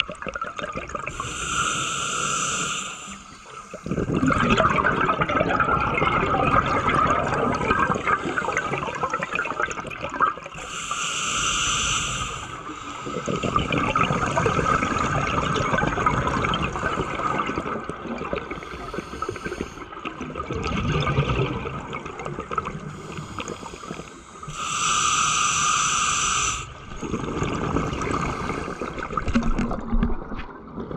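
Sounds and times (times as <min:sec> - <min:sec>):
exhaled bubbles underwater: 0:00.0 - 0:10.8, 0:12.0 - 0:24.7, 0:26.4 - 0:30.9
hissing inhale through regulator: 0:01.1 - 0:04.3, 0:08.0 - 0:09.7, 0:10.6 - 0:15.3, 0:18.4 - 0:20.1, 0:22.8 - 0:29.4.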